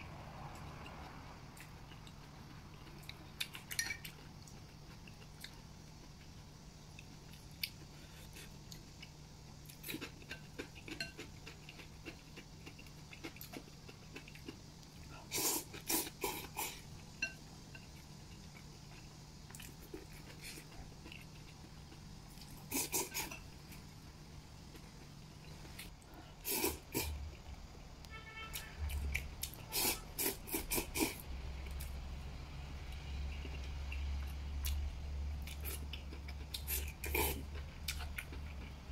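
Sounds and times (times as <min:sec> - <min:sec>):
chewing: 0:00.5 - 0:16.8, 0:17.8 - 0:23.5, 0:35.4 - 0:38.8
loud slurping: 0:26.4 - 0:27.2, 0:29.7 - 0:31.2.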